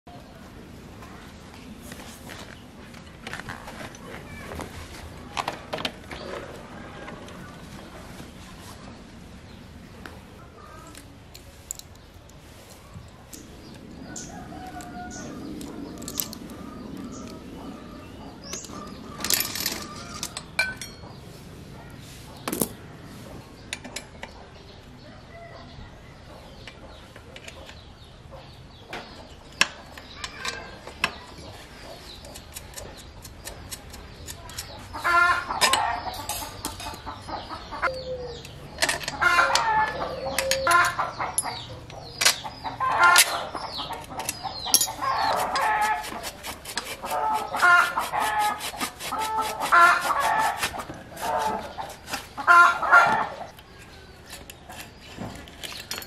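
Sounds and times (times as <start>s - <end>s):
bird calls: 3.3s - 56.0s
metallic clicks of hand tools: 40.3s - 42.4s.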